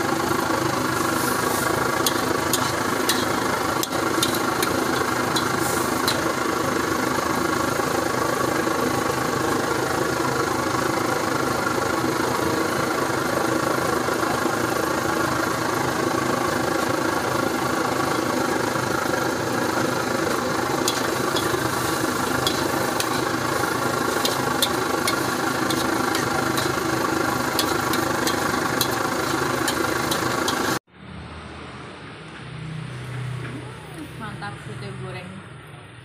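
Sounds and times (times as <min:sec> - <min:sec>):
gas wok burner roaring: 0:00.0 - 0:34.4
metal ladle scraping wok: 0:00.2 - 0:10.0, 0:16.6 - 0:30.8.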